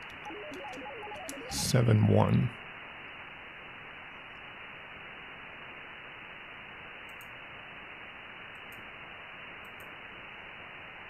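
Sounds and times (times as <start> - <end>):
radio static hiss: 0.0 - 11.0
faint clicks: 7.1 - 7.4, 8.5 - 8.9, 9.6 - 10.0.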